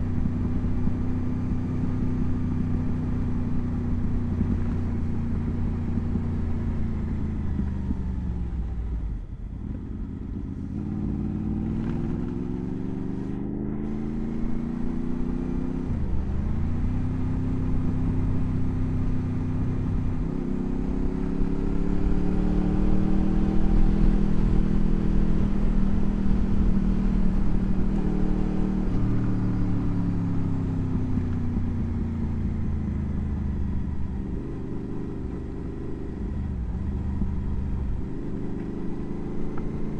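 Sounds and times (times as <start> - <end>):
motorcycle engine revving: 0.0 - 8.6, 9.6 - 39.9.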